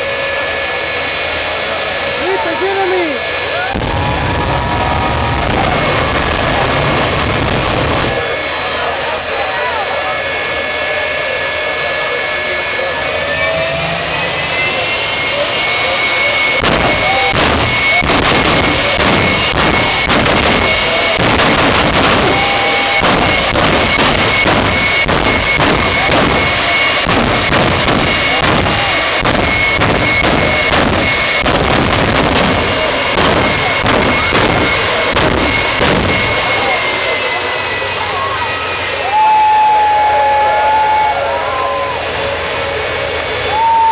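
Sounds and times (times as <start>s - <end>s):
jet turbine engine whine: 0.0s - 43.9s
exhaust cracks and bangs: 16.5s - 37.3s.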